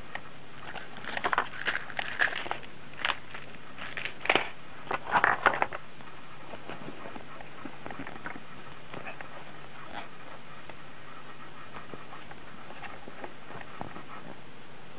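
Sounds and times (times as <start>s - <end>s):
plastic packaging crinkling: 1.0s - 4.5s.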